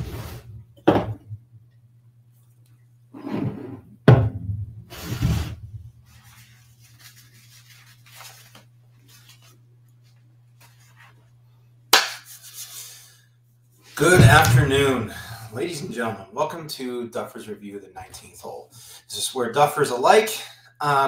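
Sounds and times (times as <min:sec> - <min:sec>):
steady low hum: 0:00.0 - 0:21.0
knocks and thumps: 0:00.5 - 0:01.5, 0:03.4 - 0:05.9, 0:14.0 - 0:15.1.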